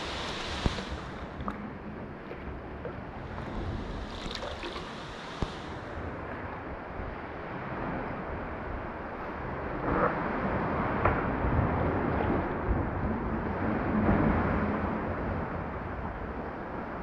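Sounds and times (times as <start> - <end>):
water splashing around kayak: 0.0 - 8.4
wind noise on microphone: 0.0 - 17.0.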